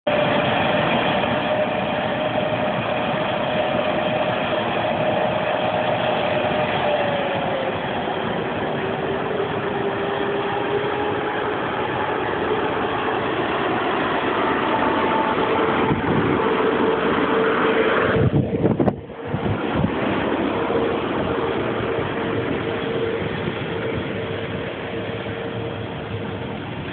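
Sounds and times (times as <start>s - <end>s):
locomotive whining tone: 0.0s - 26.9s
train wheels rumbling on rails: 0.0s - 26.9s.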